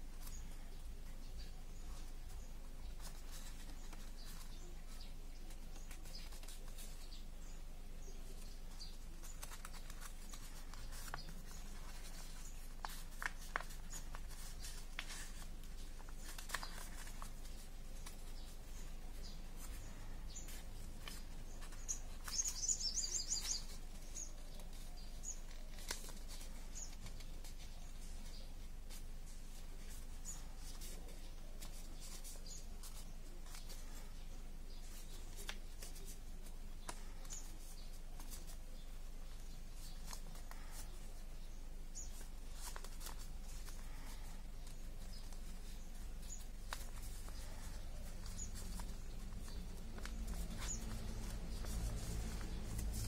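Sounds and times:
paper crinkling: 1.8s - 7.4s, 8.2s - 53.0s
paper clicks and ticks: 9.2s - 18.3s, 20.5s - 28.2s, 46.4s - 53.0s.

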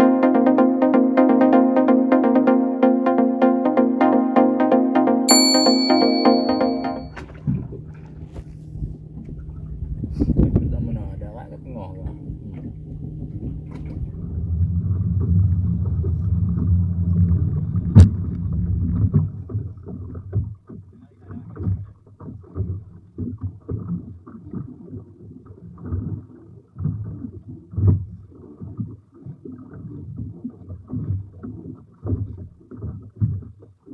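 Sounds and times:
boat engine humming: 0.0s - 20.3s
choppy water: 7.0s - 33.9s
wind buffeting: 7.5s - 19.3s.

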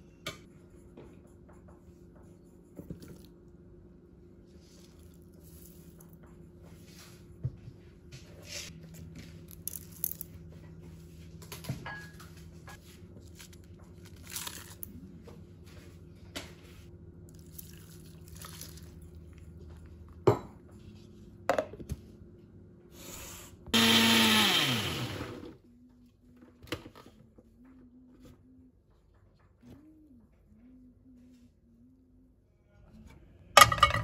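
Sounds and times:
mixer grinder running: 23.8s - 25.6s.

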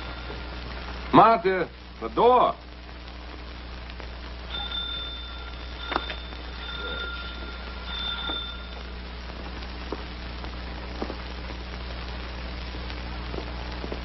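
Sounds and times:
steady low hum: 0.0s - 14.0s
two-note doorbell ringing: 4.5s - 9.0s.

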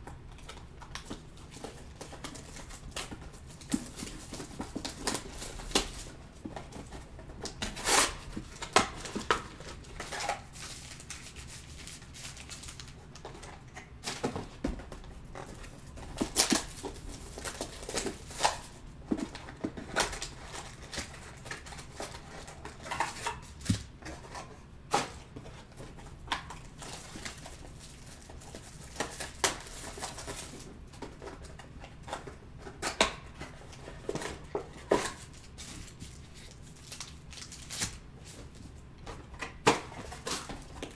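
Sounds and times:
cardboard boxes tapped and shuffled: 0.4s - 40.9s
shrink-wrap crinkling and tearing: 7.4s - 14.2s, 15.6s - 23.8s, 26.4s - 30.7s, 32.8s - 38.5s.

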